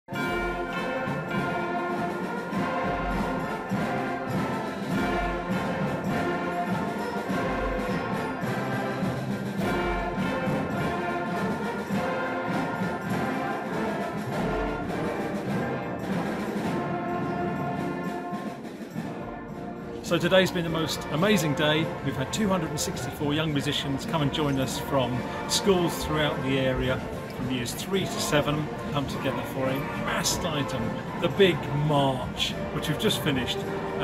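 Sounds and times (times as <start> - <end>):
ensemble playing a march: 0.1 - 34.0.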